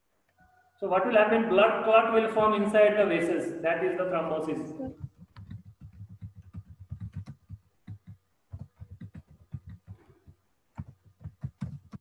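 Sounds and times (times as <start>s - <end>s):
keyboard keys clicking: 5.0s - 12.0s.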